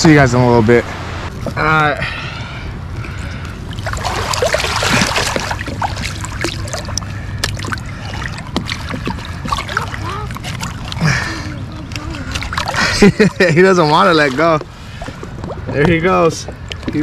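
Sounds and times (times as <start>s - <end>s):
heavier water wash: 0.0s - 17.0s
water sloshing and dripping: 2.4s - 17.0s.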